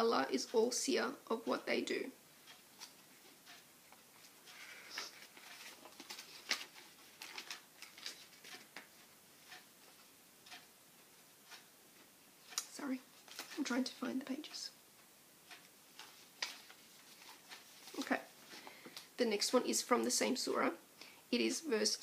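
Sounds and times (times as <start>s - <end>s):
book pages rustling: 4.2s - 10.0s, 13.2s - 13.8s, 16.0s - 19.1s.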